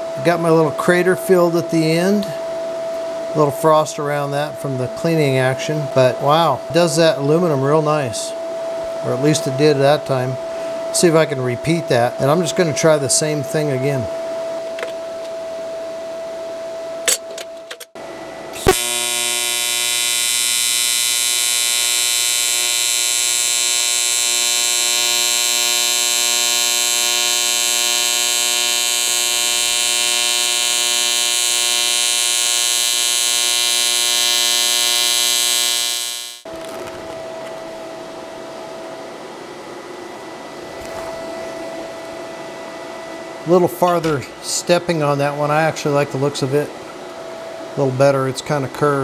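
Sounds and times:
welding arc buzzing: 18.5s - 36.5s
welding arc crackle: 18.6s - 37.0s.

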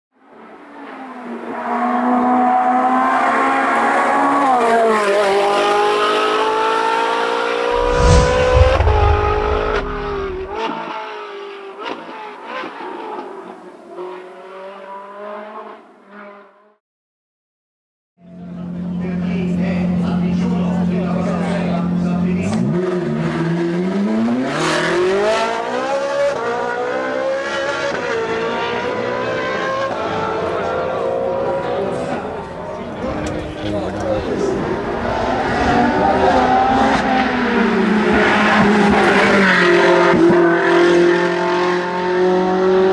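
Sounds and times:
car engine accelerating hard: 2.1s - 10.7s
heavy rumble with sharp cracks: 7.8s - 10.6s
race car engine revving: 7.8s - 10.7s.

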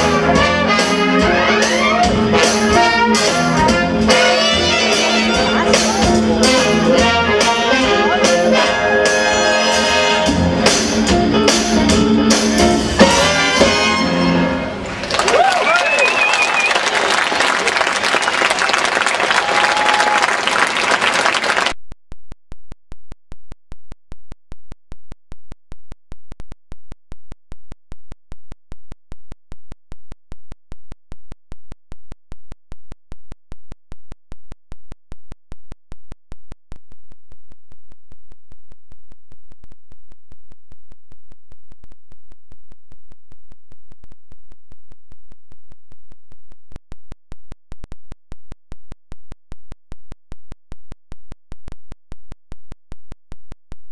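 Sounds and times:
audience applause: 14.9s - 21.8s.

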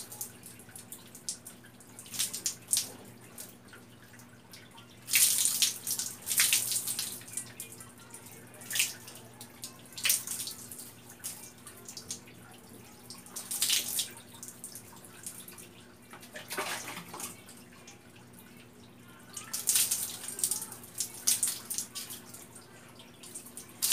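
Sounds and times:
water splashing onto floor: 0.0s - 3.5s, 5.1s - 7.5s, 13.1s - 15.5s, 19.4s - 22.4s, 23.2s - 23.9s.

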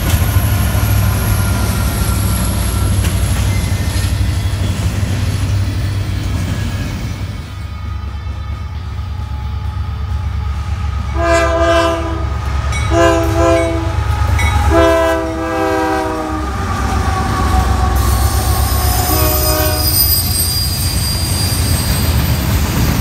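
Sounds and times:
high wheel squeal: 0.2s - 8.5s, 16.6s - 23.0s
locomotive air horn: 11.1s - 20.4s.

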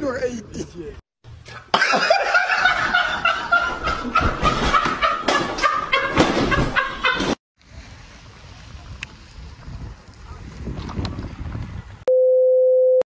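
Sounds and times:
person snickering and cackling: 1.5s - 7.4s.

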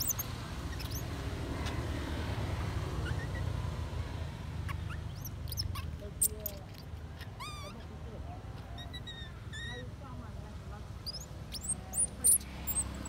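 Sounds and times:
high animal squeaks: 0.0s - 1.9s, 2.9s - 3.7s, 4.6s - 10.2s, 10.9s - 13.0s.

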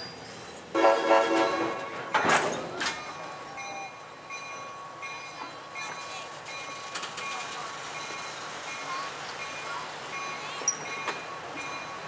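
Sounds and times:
train cars rolling on rails: 0.0s - 12.0s
locomotive chime horn blast: 0.7s - 2.2s.

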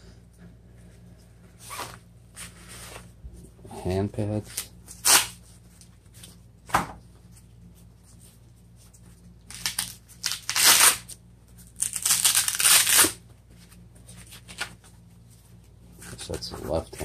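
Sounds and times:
velcro straps ripping open: 4.5s - 5.4s, 9.5s - 13.2s.

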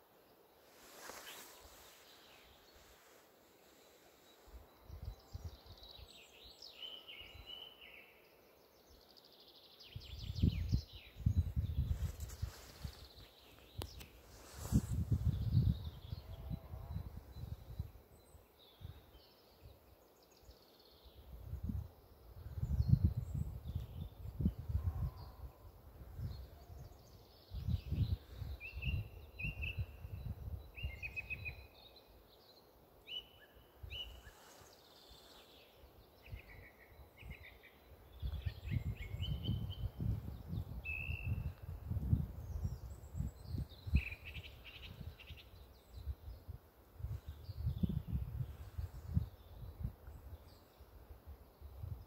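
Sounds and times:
songbirds chirping and trilling: 0.0s - 52.0s
wind rumbling on microphone: 9.9s - 19.2s, 21.2s - 31.7s, 33.8s - 52.0s.

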